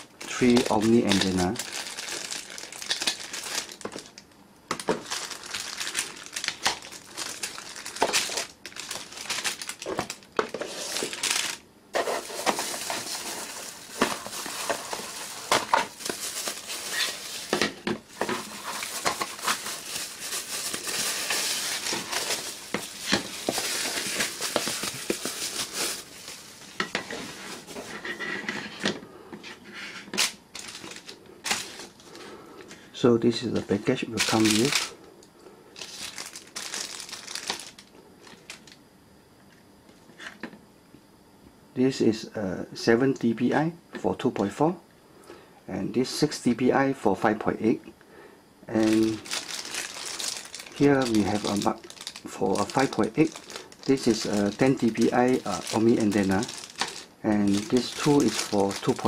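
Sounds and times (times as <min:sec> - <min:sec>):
plastic bags crinkling: 0:00.0 - 0:27.9, 0:30.2 - 0:32.2, 0:33.6 - 0:35.0, 0:35.8 - 0:38.8, 0:48.8 - 0:59.0.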